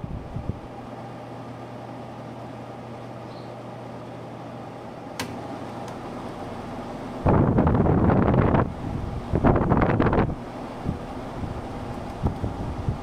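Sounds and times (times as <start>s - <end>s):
air conditioner humming: 0.0s - 13.0s
sharp click: 5.2s - 6.0s.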